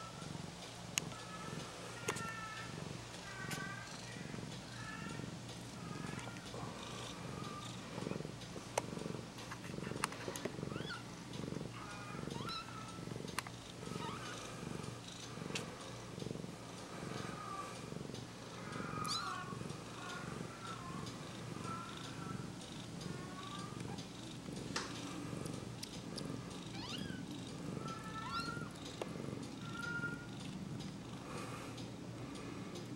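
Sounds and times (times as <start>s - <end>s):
cat purring: 0.0s - 32.9s
small clicks: 1.9s - 16.0s, 17.2s - 32.9s
kittens squeaking: 10.7s - 11.1s, 11.8s - 13.0s, 13.9s - 14.4s, 18.7s - 20.8s, 26.7s - 28.8s.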